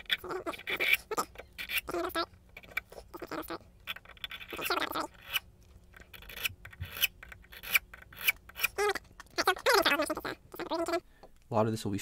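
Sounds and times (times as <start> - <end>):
hand file rasping on metal: 4.1 - 8.8.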